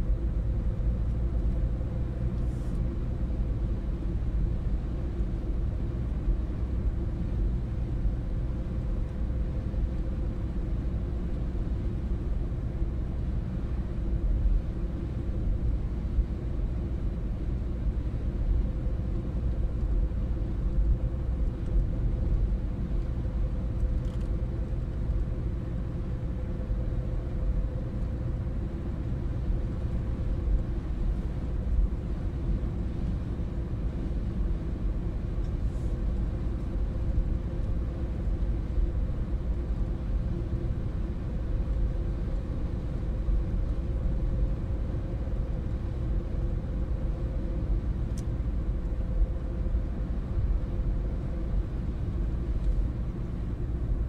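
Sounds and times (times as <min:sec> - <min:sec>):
car interior road rumble: 0:00.0 - 0:54.0
faint steady drone: 0:00.0 - 0:54.0.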